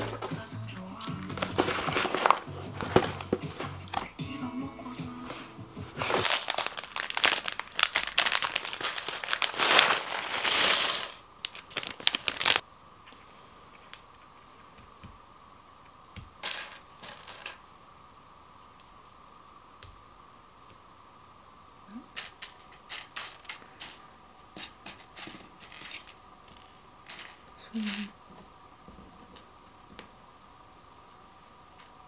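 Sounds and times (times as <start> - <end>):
crinkling: 1.1 - 4.2, 5.3 - 14.4, 22.1 - 30.2
plastic bricks clattering on table: 6.1 - 12.6, 16.4 - 17.6, 22.2 - 28.1
plastic pieces clicking: 6.2 - 12.6, 22.2 - 24.0, 24.6 - 28.1.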